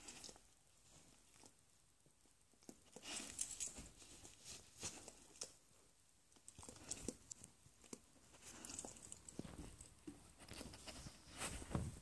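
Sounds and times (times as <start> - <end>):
soft rustles on a duvet: 3.1 - 5.4, 8.3 - 12.0.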